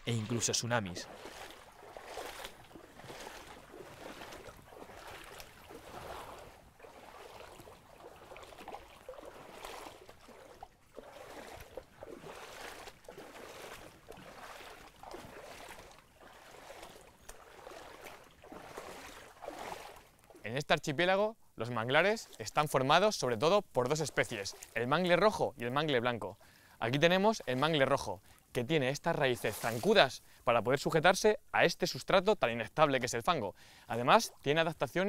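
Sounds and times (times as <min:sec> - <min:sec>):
water sloshing and trickling: 0:00.0 - 0:20.6, 0:21.9 - 0:30.4.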